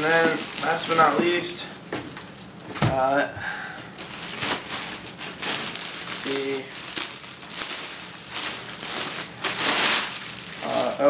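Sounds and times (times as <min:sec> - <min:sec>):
plastic bag crinkling: 0:00.0 - 0:02.7, 0:03.7 - 0:11.0.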